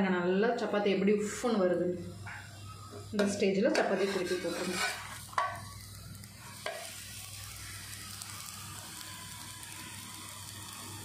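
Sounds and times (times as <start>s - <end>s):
flatbread sizzling on griddle: 3.1s - 11.0s.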